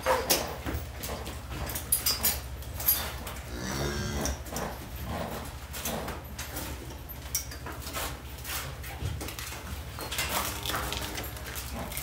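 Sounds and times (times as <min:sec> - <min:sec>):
faint cow moo: 0:03.5 - 0:04.4, 0:10.3 - 0:12.0.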